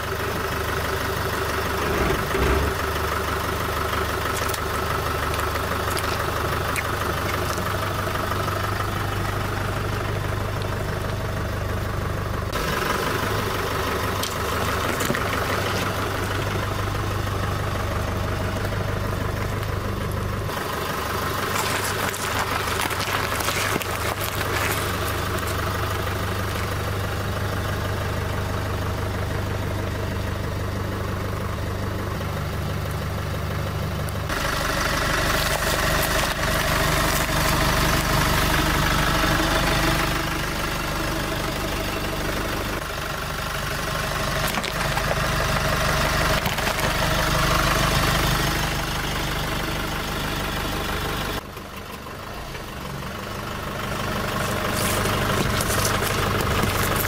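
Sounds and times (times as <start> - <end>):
truck engine idling: 0.0 - 57.0.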